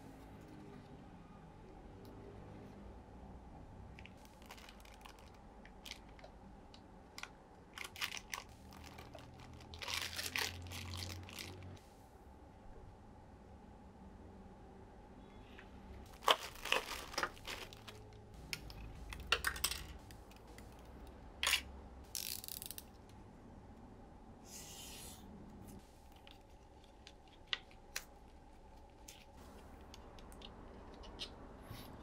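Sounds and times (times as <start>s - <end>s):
paper rustling: 16.1s - 18.1s.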